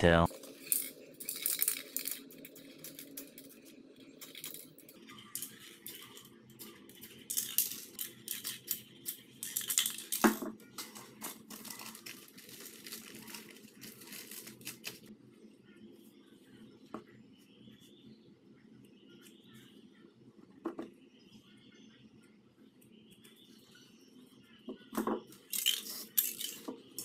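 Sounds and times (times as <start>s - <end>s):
paper rustling: 10.8s - 15.1s.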